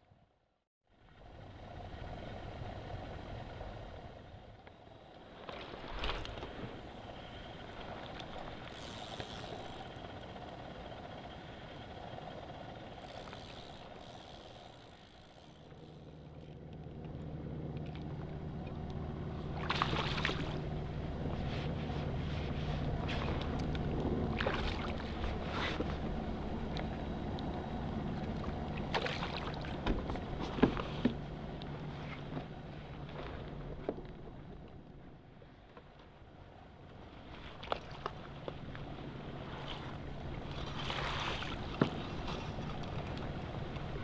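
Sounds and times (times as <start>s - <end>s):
low mechanical hum: 0.2s - 44.0s
fish splashing at the surface: 19.6s - 20.6s, 28.8s - 29.8s.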